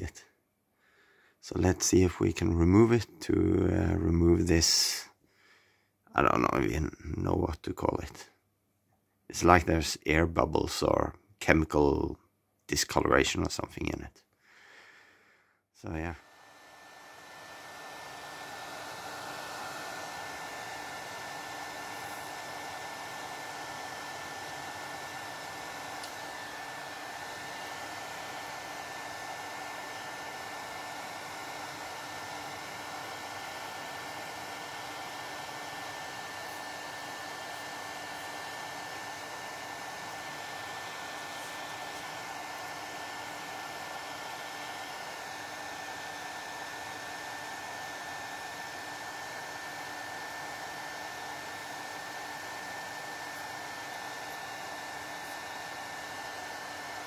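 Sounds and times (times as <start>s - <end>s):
hair dryer running: 15.8s - 57.0s.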